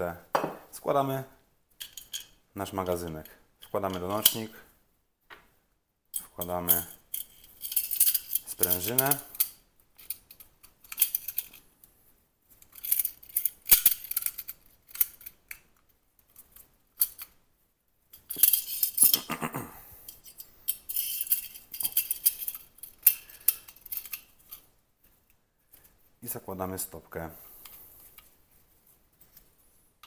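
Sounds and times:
light metallic clicks and rattles: 6.1 - 11.6, 12.5 - 17.4, 20.1 - 25.9.

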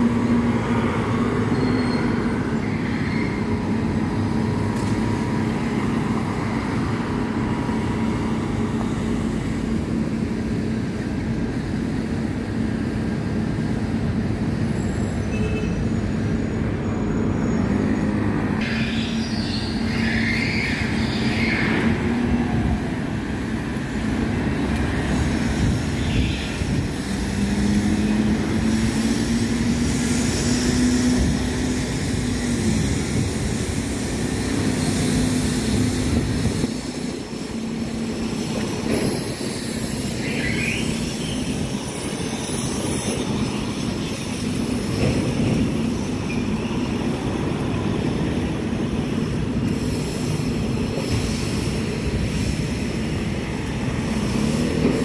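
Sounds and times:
road traffic engines and tyres: 0.0 - 55.0
brief high squeal: 1.5 - 3.6, 39.0 - 42.0.

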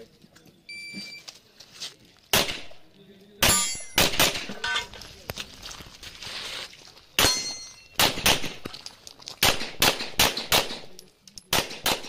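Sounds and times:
pistol shots: 2.3 - 2.8, 3.4 - 4.6, 7.2 - 8.7, 9.4 - 12.0
steel target plate ringing: 3.4 - 4.0, 7.2 - 8.0.

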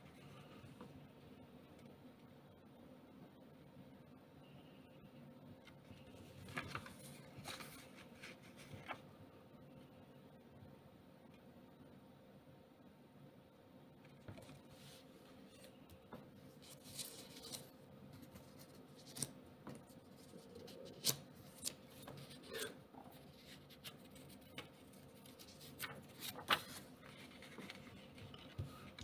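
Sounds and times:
paper banknotes rustling: 6.4 - 9.0, 16.6 - 19.4, 23.3 - 29.0.

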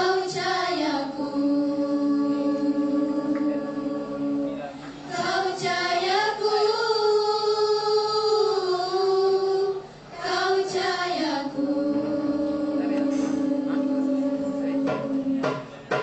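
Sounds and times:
girls singing together: 0.0 - 16.0.

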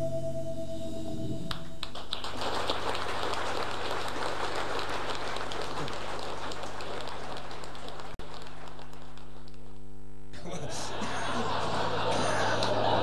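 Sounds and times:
audience applause: 1.8 - 9.6, 10.6 - 13.0.

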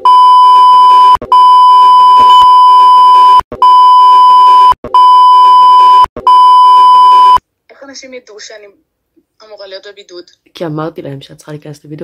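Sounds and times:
censor bleep tone: 0.0 - 7.4.

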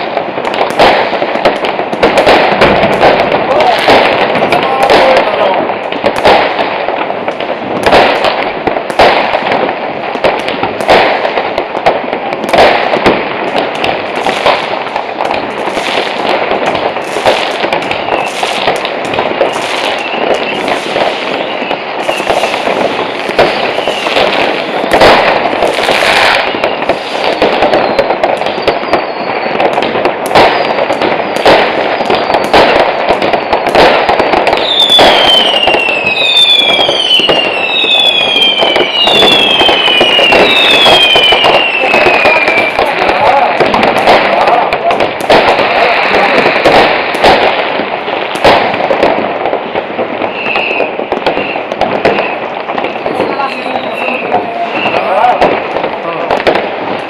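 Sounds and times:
firecracker bangs: 0.0 - 57.0
fireworks crackling: 0.0 - 57.0
rocket bursts: 0.0 - 57.0
falling firework whistles: 17.0 - 42.9, 50.2 - 55.6.

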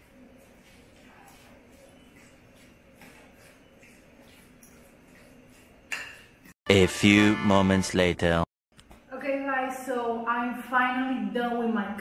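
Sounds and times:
fork stirring guacamole in bowl: 0.0 - 6.5.

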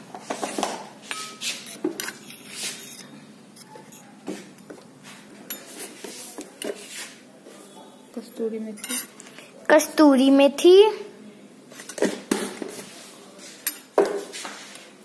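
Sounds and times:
metal spoon clinking and scraping bowl: 0.4 - 4.8, 5.4 - 7.1, 8.7 - 9.2, 13.6 - 14.0.

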